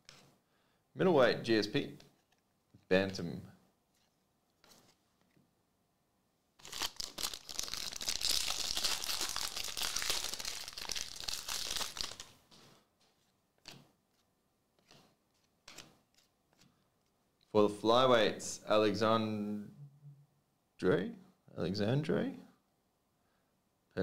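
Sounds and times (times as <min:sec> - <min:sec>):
packaging wrapper crinkling: 0:06.6 - 0:12.4.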